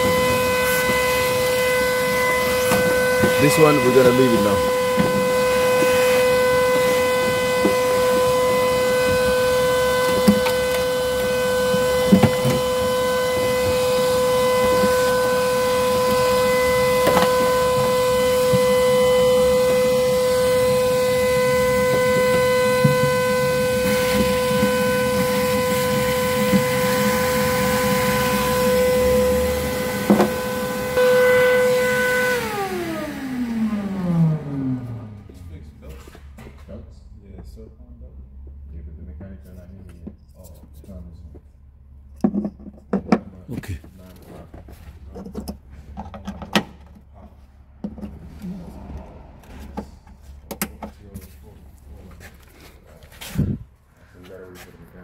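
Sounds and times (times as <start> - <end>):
motor whining: 0.0 - 35.8.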